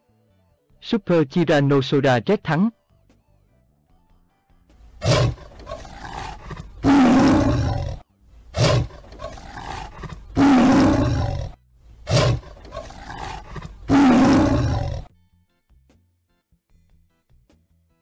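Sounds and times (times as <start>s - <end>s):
cartoon dinosaur roar: 5.0s - 15.1s.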